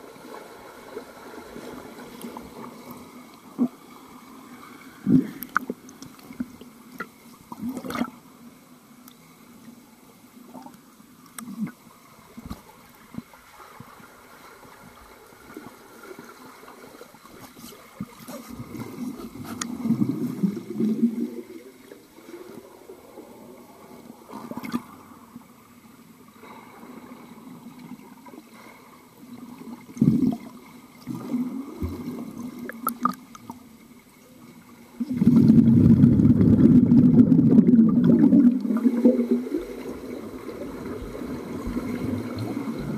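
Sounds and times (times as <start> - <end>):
underwater swimming splashes: 0.0 - 8.3, 11.5 - 25.3, 34.8 - 42.9
bubbles churning underwater: 35.0 - 42.9.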